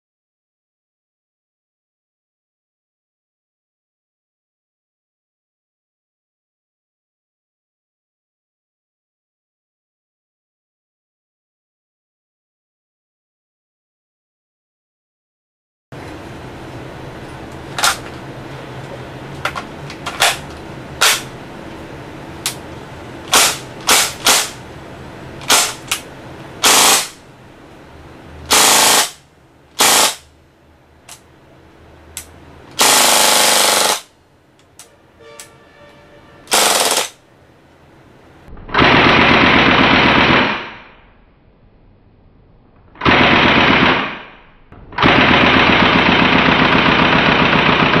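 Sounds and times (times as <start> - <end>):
airsoft gun automatic fire: 23.3 - 24.6, 25.4 - 25.8, 26.6 - 27.2, 28.5 - 29.2, 29.8 - 30.2, 32.8 - 34.1, 36.5 - 37.2, 38.6 - 41.0, 43.0 - 48.0.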